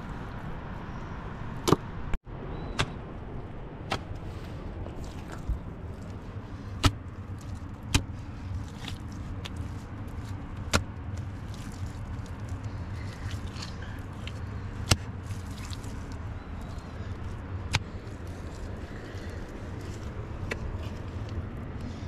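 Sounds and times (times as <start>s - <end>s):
wet mud slapping: 4.8s - 21.4s.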